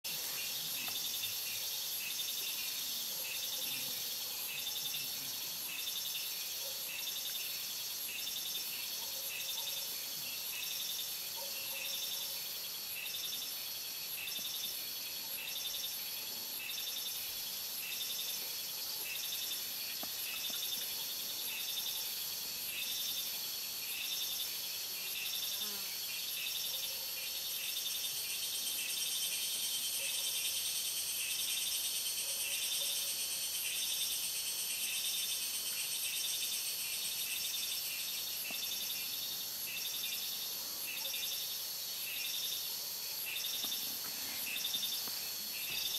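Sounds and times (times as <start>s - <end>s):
insects buzzing shrilly: 22.7s - 26.6s.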